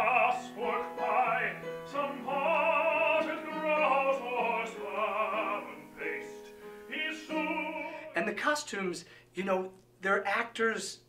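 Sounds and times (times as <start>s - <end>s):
digital piano: 0.0s - 8.4s
person singing with vibrato: 0.0s - 8.4s.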